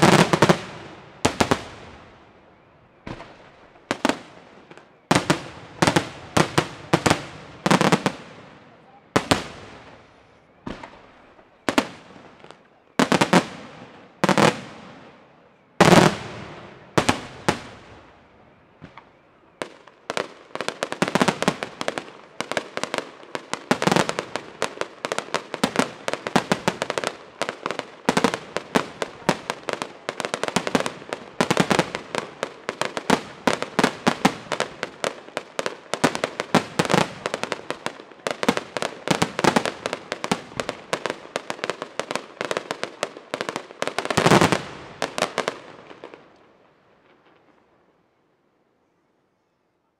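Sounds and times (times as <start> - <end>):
rapid fireworks crackle: 0.0 - 2.4, 3.0 - 47.8
fireworks bangs: 0.0 - 47.7.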